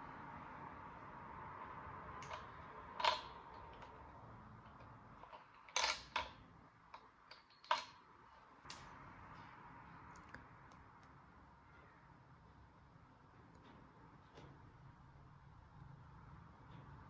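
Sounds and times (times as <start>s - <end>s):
plastic toy pieces clicking: 2.2s - 4.0s, 4.8s - 8.0s.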